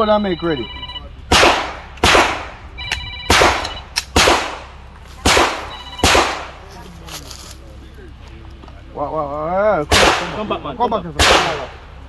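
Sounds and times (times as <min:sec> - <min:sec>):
pistol shots with echo: 0:01.3 - 0:02.6, 0:03.3 - 0:06.6, 0:09.9 - 0:10.5, 0:11.2 - 0:11.9.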